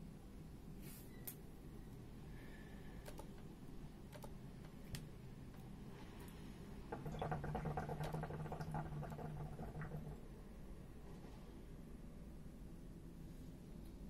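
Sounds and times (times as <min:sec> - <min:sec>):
hookah water bubbling: 0:06.8 - 0:10.4.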